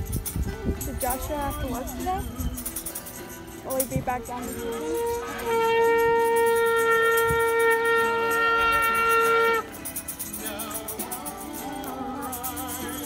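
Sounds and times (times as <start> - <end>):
shaken rattle: 0.0 - 13.0
wavering voices: 0.8 - 13.0
shofar blast: 4.7 - 9.8.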